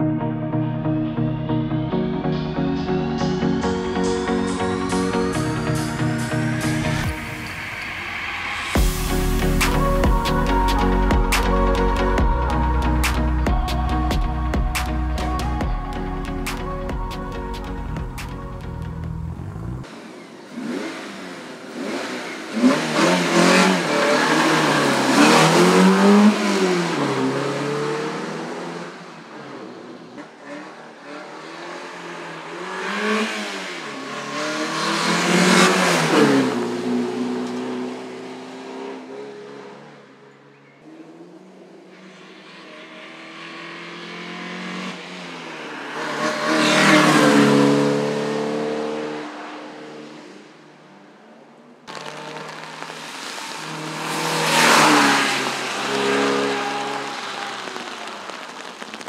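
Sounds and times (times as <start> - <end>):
race car engine revving past: 19.1 - 40.2, 40.9 - 50.7, 51.9 - 58.8.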